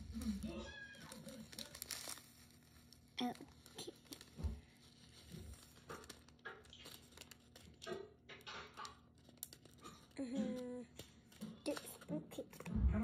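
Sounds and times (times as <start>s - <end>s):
light rustling and crinkling: 0.0s - 10.2s.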